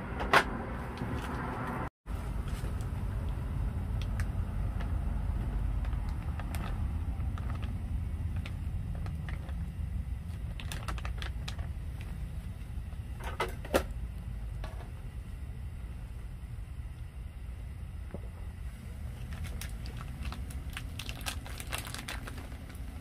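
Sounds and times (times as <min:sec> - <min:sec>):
low rumble: 0:00.0 - 0:23.0
broth boiling: 0:02.1 - 0:23.0
plastic bag crinkling: 0:05.8 - 0:12.1, 0:19.1 - 0:23.0.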